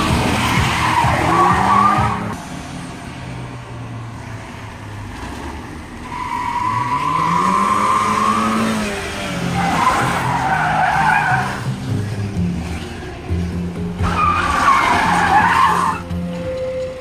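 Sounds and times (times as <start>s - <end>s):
car engine revving: 0.0s - 2.4s, 3.2s - 16.1s
tyres squealing: 6.0s - 11.7s, 14.0s - 17.0s.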